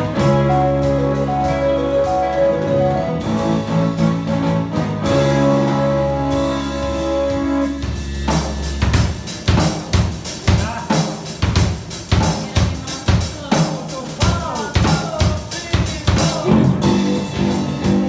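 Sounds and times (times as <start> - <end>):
keyboard chords: 0.0 - 11.0, 16.1 - 18.0
drum kit beat: 0.0 - 18.0.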